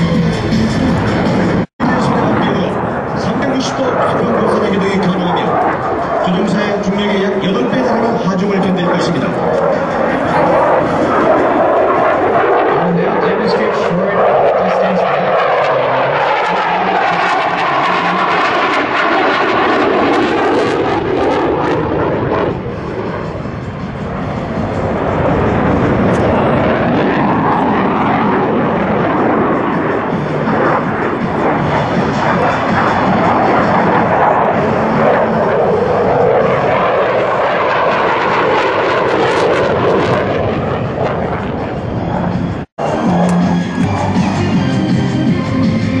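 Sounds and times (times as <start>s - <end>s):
jet rush: 0.0s - 46.0s.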